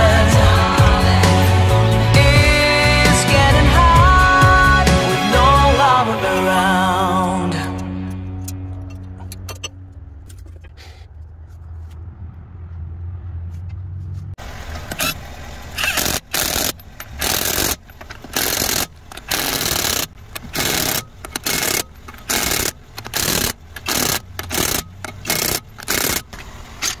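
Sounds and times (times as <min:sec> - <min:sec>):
impact wrench hammering: 0:15.8 - 0:26.3.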